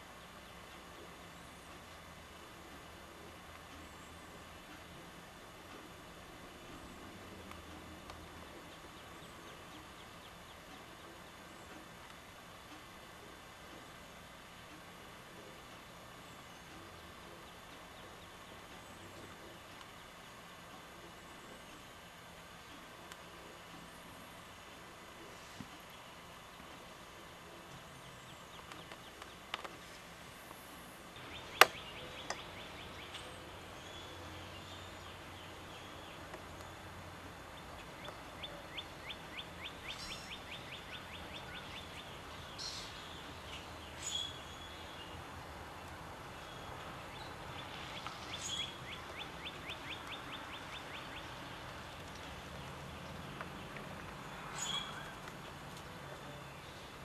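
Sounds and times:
sharp click: 31.5s - 32.4s.

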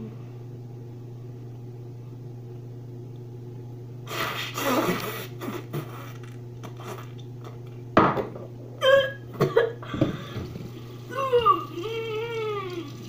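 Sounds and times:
mouth and throat noises: 4.1s - 7.2s.

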